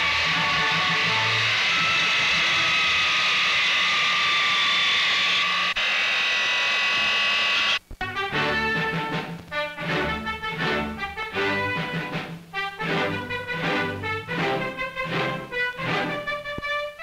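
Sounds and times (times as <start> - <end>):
circular saw whining through log: 0.0 - 7.8.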